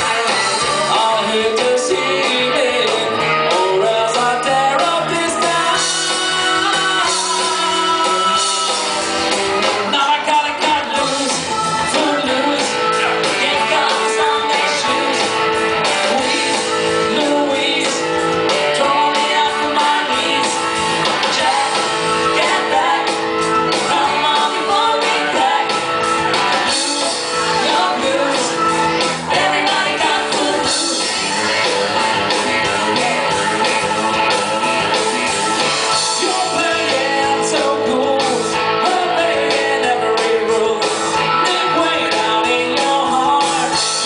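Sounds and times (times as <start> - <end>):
man singing: 0.0 - 25.8, 26.5 - 31.2, 35.9 - 44.0
bass guitar: 0.0 - 44.0
electric guitar: 0.0 - 44.0
woman singing: 23.9 - 25.8.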